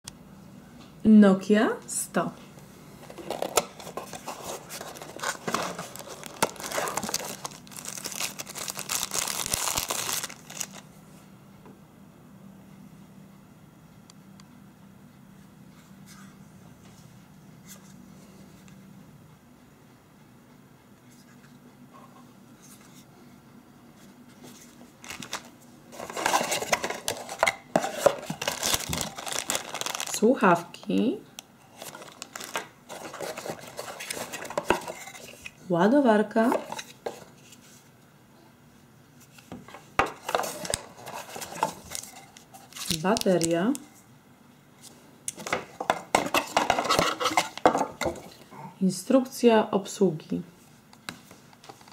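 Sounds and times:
plastic bag crinkling: 0:03.1 - 0:10.9, 0:25.0 - 0:30.3, 0:31.7 - 0:35.3, 0:40.3 - 0:43.8
cardboard box clicks and rustles: 0:03.2 - 0:10.8, 0:26.0 - 0:30.1.

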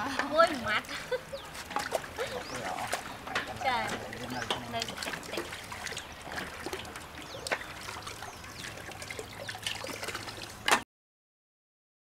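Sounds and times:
water pouring into metal basin: 0:01.8 - 0:10.8.

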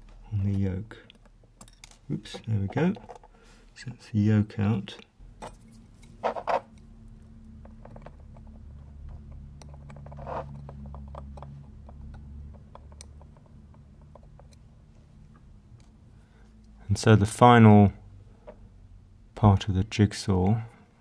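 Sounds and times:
steady low hum: 0:00.0 - 0:20.0
tweezers clicking on watch parts: 0:12.1 - 0:14.7.

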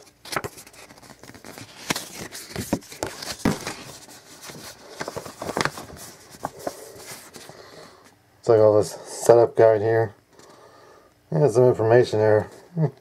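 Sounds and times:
paper crinkling and rustling: 0:00.0 - 0:07.8.

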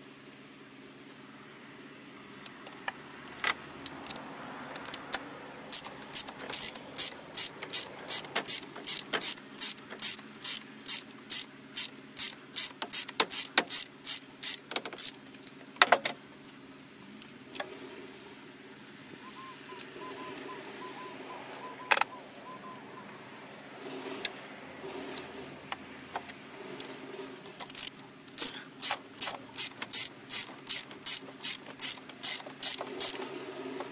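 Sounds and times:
ratchet wrench clicking: 0:03.8 - 0:17.6, 0:27.6 - 0:33.3.

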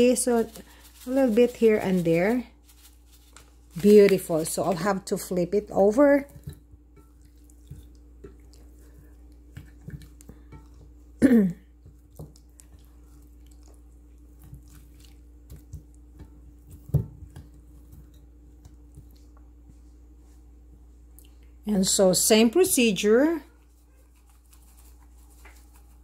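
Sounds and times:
wet squishes of raw meat: 0:05.5 - 0:10.9, 0:11.8 - 0:19.6.

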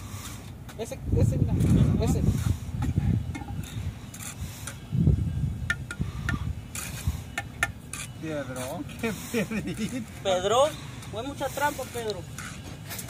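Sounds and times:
trowels scraping concrete blocks: 0:01.5 - 0:04.9, 0:06.3 - 0:13.0.

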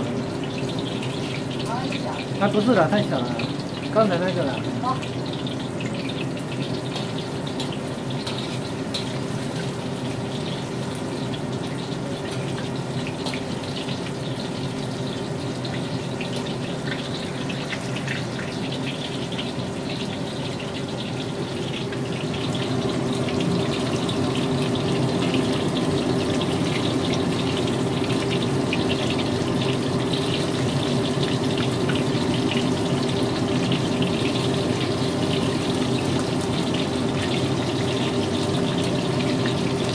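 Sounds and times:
chicken deep-frying in oil: 0:00.0 - 0:39.9.

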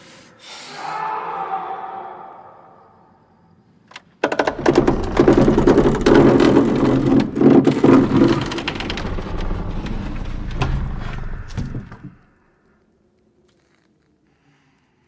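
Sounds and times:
rapid rattling and knocking: 0:04.2 - 0:12.2
low rumble: 0:04.5 - 0:12.5.

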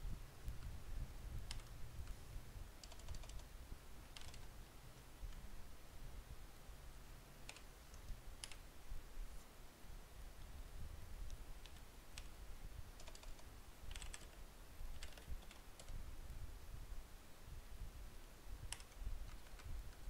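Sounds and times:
computer keyboard typing: 0:01.4 - 0:01.7, 0:02.8 - 0:03.5, 0:04.1 - 0:04.6, 0:07.4 - 0:08.6, 0:11.6 - 0:12.4, 0:13.0 - 0:16.0, 0:18.7 - 0:20.0.

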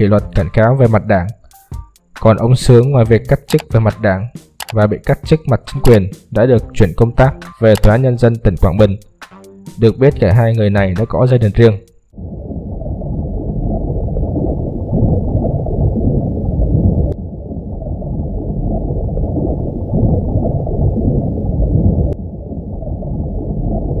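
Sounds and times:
underwater rush of water: 0:12.2 - 0:24.0.

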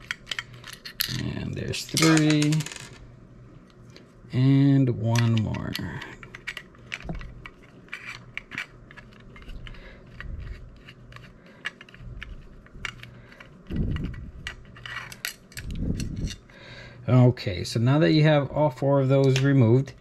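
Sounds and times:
screwdriver clicking and scraping: 0:05.1 - 0:16.4.

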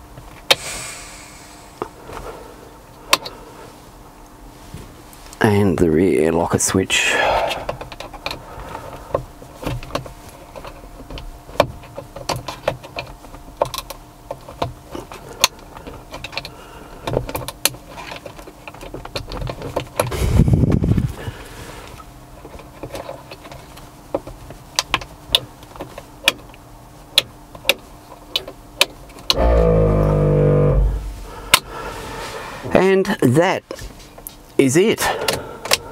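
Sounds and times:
electric motor hum: 0:29.4 - 0:32.3.

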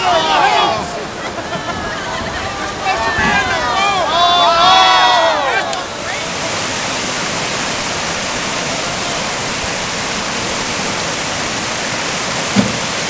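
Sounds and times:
river rapids rushing: 0:00.0 - 0:13.0
short thump: 0:12.5 - 0:12.8.

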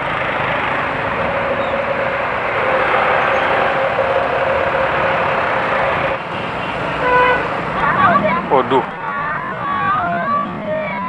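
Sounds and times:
motorcycle engine running: 0:00.0 - 0:07.9
faint steady whine: 0:00.0 - 0:11.0
road and wind noise: 0:00.0 - 0:11.0.

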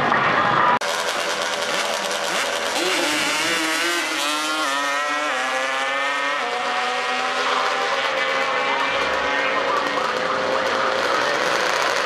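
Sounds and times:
atv engine revving at full throttle: 0:00.8 - 0:12.0.

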